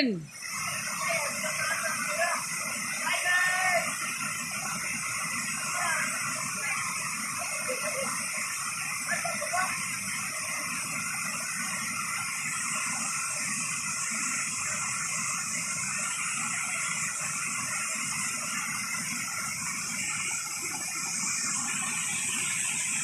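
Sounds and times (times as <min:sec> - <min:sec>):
waterfall rushing over rocks: 0:00.3 - 0:23.0.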